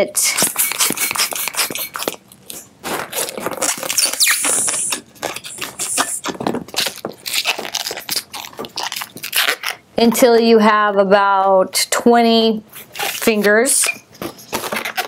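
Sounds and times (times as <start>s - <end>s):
balloon rubbing and squeaking: 0.0s - 9.8s, 12.7s - 15.0s
short air hiss: 4.2s - 5.0s, 5.6s - 6.3s.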